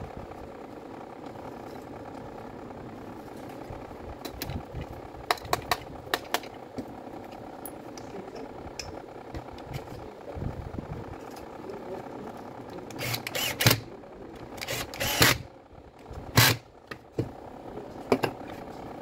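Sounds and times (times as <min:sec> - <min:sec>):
steady low hum: 0:00.0 - 0:19.0
plastic parts clicking and knocking: 0:05.2 - 0:06.8.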